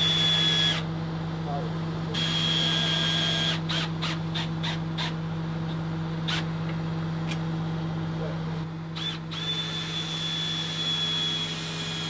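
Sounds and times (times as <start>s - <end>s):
cordless drill whining: 0.0s - 0.8s, 2.2s - 5.1s, 9.0s - 12.0s
steady low hum: 0.0s - 12.0s.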